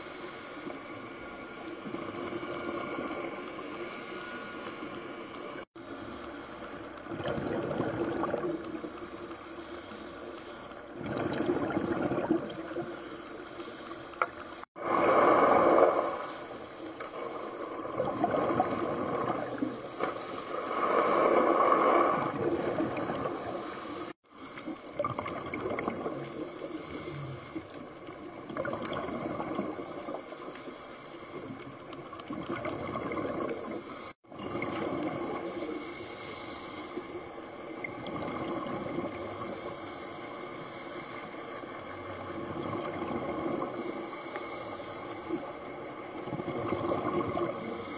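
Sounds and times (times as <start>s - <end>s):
underwater diver breathing bubbles: 5.8s - 31.6s.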